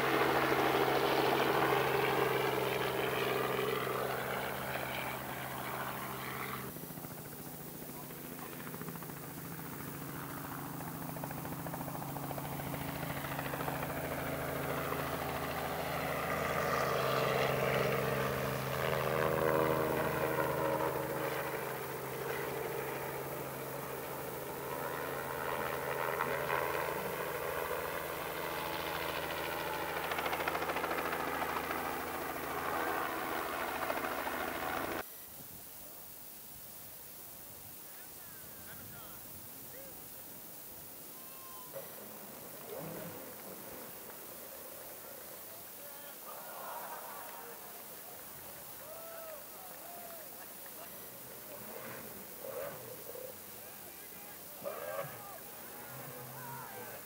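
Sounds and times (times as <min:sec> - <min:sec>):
helicopter engine and rotor: 0:00.0 - 0:35.0.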